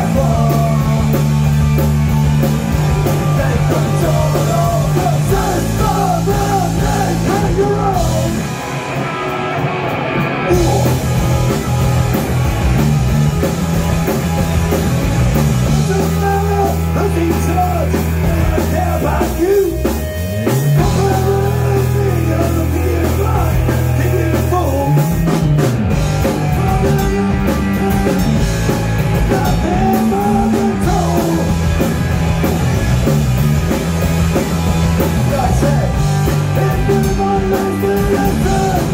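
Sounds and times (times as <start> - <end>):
man singing: 0.0 - 1.3, 3.1 - 8.5, 10.5 - 11.1, 15.7 - 20.0, 20.7 - 25.3, 26.2 - 28.4, 29.2 - 31.8, 35.2 - 38.9
drum kit: 0.0 - 38.9
electric bass: 0.0 - 38.9
electric guitar: 0.0 - 38.9.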